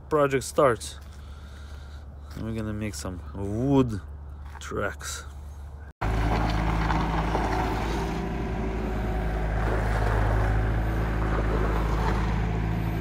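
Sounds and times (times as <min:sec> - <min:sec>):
diesel truck engine idling: 0:06.0 - 0:13.0
low hum: 0:06.0 - 0:13.0.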